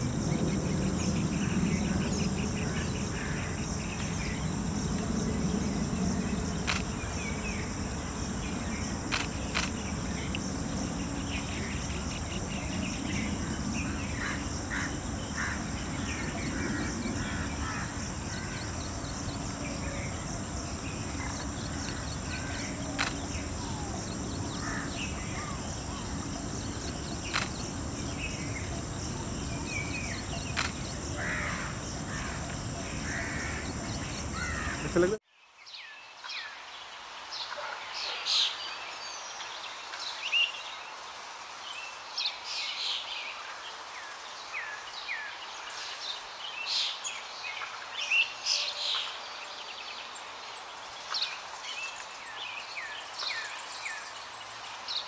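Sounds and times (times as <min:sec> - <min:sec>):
insects droning: 0:00.0 - 0:35.2
sharp clicks: 0:06.6 - 0:06.9, 0:09.1 - 0:10.4, 0:23.0 - 0:23.4, 0:27.2 - 0:27.6, 0:30.5 - 0:30.9.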